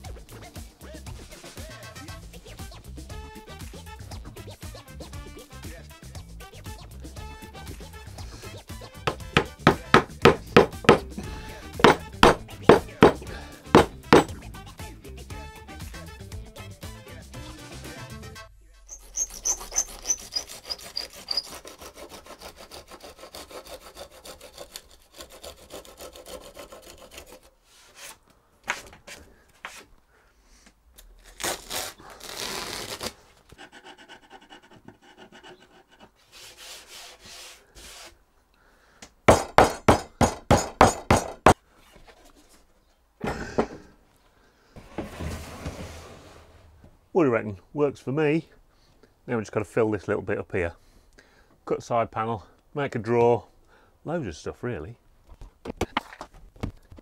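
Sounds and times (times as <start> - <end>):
sanding block rubbing wood: 7.8 - 14.3, 18.9 - 28.2, 33.6 - 38.2.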